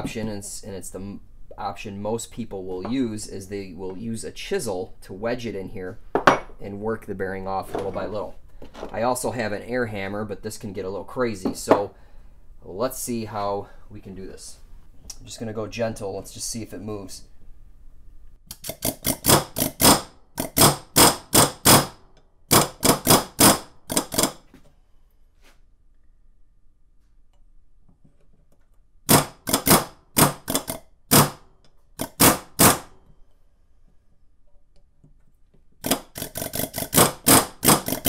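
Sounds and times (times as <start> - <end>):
pneumatic air hammer rattling: 18.5 - 24.4, 29.1 - 31.4, 32.0 - 33.0, 35.8 - 38.0.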